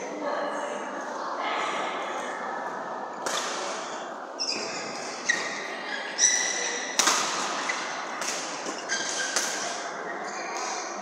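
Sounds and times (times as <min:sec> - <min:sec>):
rackets hitting shuttlecock: 0:03.2 - 0:03.8, 0:06.9 - 0:09.9
shoes squeaking on floor: 0:03.8 - 0:06.9, 0:07.5 - 0:10.8.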